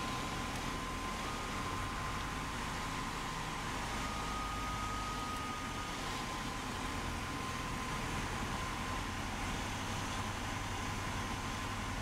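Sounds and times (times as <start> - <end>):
thin high whine: 0.0 - 8.8
airplane engine and propeller: 0.0 - 12.0.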